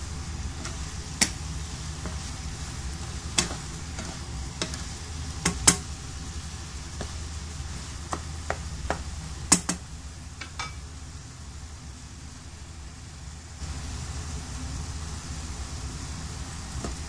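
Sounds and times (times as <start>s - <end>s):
steady low hum: 0.0s - 17.0s
wooden spatula tapping a pan: 0.6s - 1.4s, 2.0s - 2.4s, 3.0s - 5.9s, 6.9s - 7.3s, 8.0s - 9.8s, 10.4s - 10.9s, 16.8s - 17.0s.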